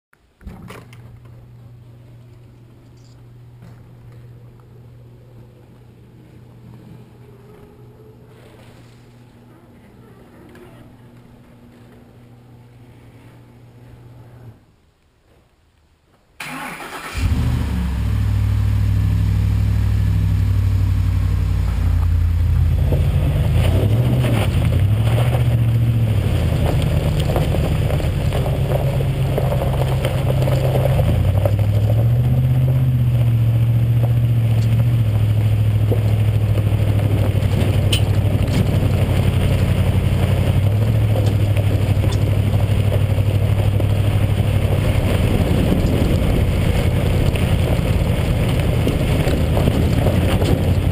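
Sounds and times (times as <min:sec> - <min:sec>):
engine accelerating: 0:16.4 - 0:50.9
truck engine idling: 0:16.5 - 0:50.9.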